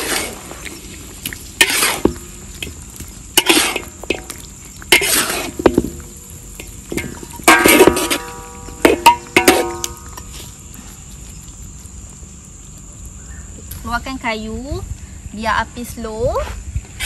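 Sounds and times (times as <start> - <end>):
metal spatula scraping a wok: 0.0 - 0.9, 1.5 - 2.3, 3.3 - 10.4
wok ringing: 6.6 - 10.3.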